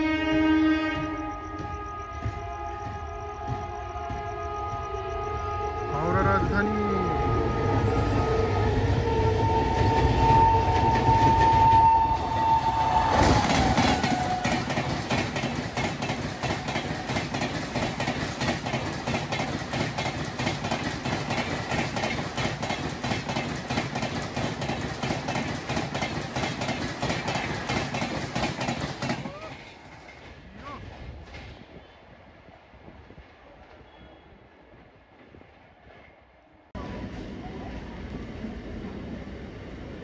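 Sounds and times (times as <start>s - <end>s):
train wheels clickety-clack: 0.0s - 5.6s, 8.5s - 31.8s
train horn: 0.0s - 14.9s
train rushing by: 0.0s - 40.0s.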